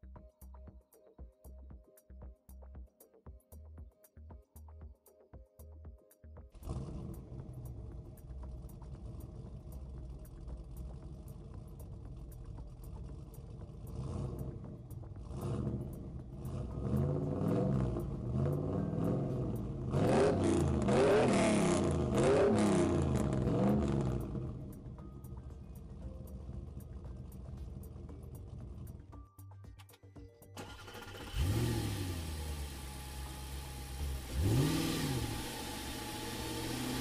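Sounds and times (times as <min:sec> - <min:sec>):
heavy vehicle engine revving: 0:06.6 - 0:24.8, 0:31.1 - 0:37.0.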